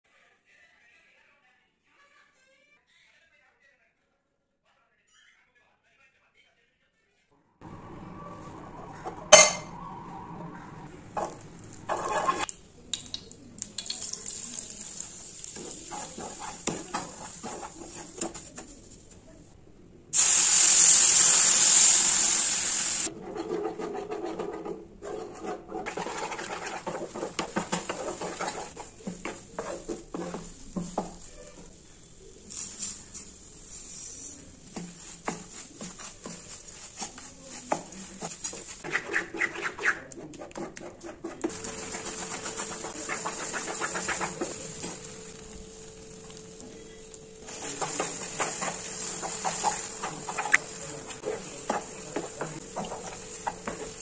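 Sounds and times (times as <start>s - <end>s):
wooden spatula scraping pan: 11.2s - 12.5s, 15.0s - 19.2s, 23.1s - 54.0s
sizzling hiss in pan: 13.6s - 19.1s, 20.2s - 23.1s, 26.0s - 38.8s, 41.5s - 54.0s.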